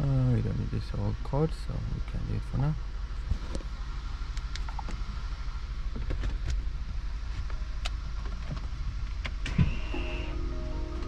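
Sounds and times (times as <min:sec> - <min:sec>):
car engine low rumble: 0:00.0 - 0:11.0
brief high tone: 0:09.8 - 0:11.0.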